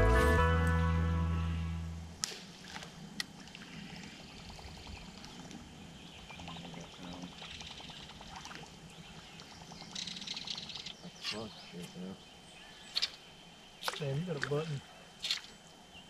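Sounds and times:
background music: 0.0 - 2.1
water splashing against hull: 6.3 - 11.4.

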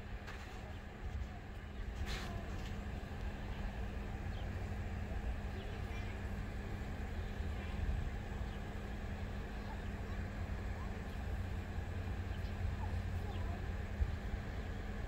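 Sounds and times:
low uneven rumble: 0.0 - 15.0
steady low hum: 0.0 - 15.0.

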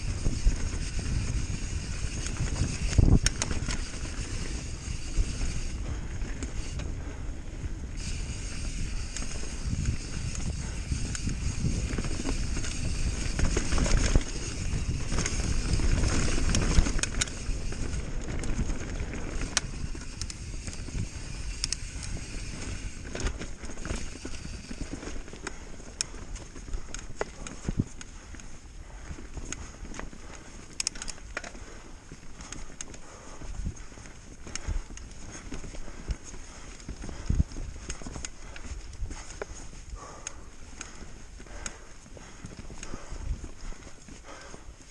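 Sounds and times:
wind on microphone: 0.0 - 26.2
bike rattling over bumps: 0.0 - 44.9
bike tyres rumbling on dirt: 0.0 - 44.9.

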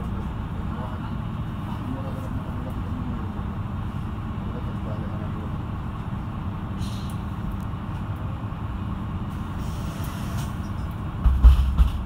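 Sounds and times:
bus diesel engine humming: 0.0 - 12.0
loud low thump: 11.2 - 12.0.

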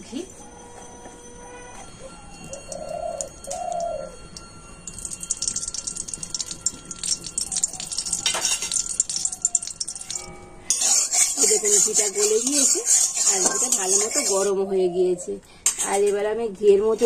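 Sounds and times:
bird cooing: 2.0 - 4.4, 7.3 - 8.4, 13.5 - 15.4
ghee crackling in a hot pan: 2.4 - 14.5.

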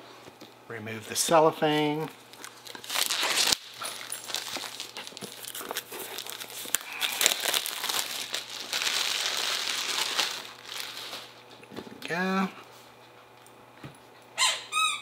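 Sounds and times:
cellophane crinkling and tearing: 1.7 - 11.5.

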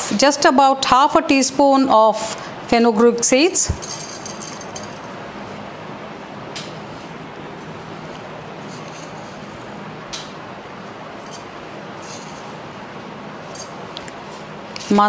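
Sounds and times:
metal spoon clinking: 3.8 - 5.1, 11.2 - 12.4.

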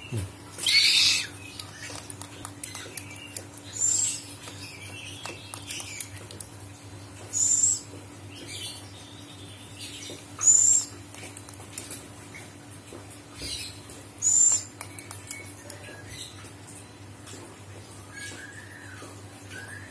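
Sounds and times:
owl hissing whistled calls: 0.6 - 1.3.

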